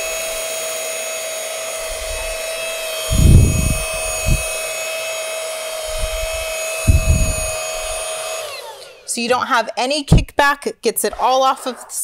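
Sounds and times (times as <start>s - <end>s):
vacuum motor whine: 0.0s - 9.1s
dull thumps: 1.8s - 4.7s, 5.8s - 8.1s.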